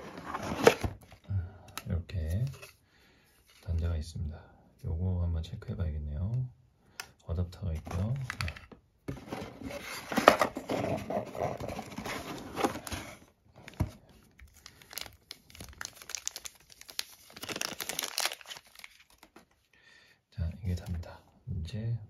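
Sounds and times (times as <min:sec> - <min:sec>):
packaging rustling: 0:07.9 - 0:19.6
plastic bag crinkling: 0:14.4 - 0:19.4.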